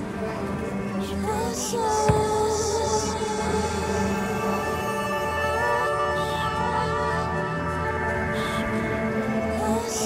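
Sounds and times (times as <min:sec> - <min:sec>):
music with sustained layered notes: 0:00.0 - 0:10.0.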